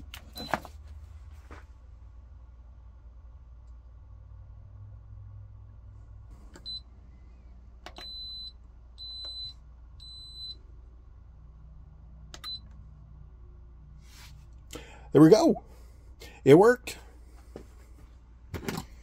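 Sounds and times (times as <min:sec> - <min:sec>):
control panel beeps: 0:06.6 - 0:06.8, 0:07.9 - 0:10.6, 0:12.4 - 0:12.7.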